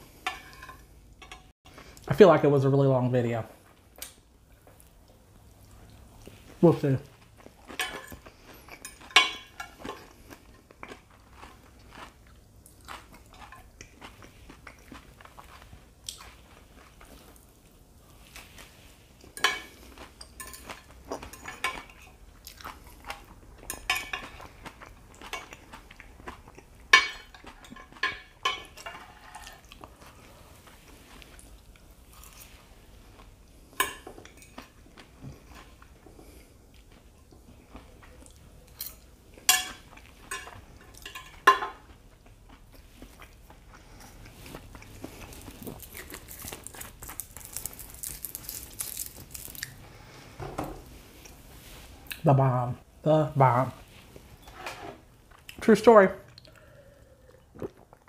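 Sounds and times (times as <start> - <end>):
cutlery clinking and scraping on plate: 0.2 - 1.5, 7.7 - 10.2, 19.4 - 22.2, 23.1 - 24.5, 26.9 - 29.7, 33.8 - 34.7, 38.7 - 41.8
close chewing: 41.8 - 49.8.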